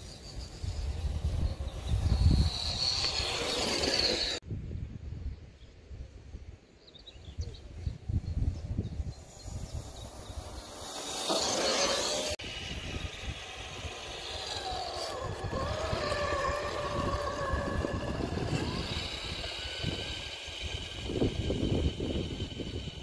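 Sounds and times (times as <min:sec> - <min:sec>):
electric motor whining: 0:00.0 - 0:04.4, 0:09.2 - 0:23.0.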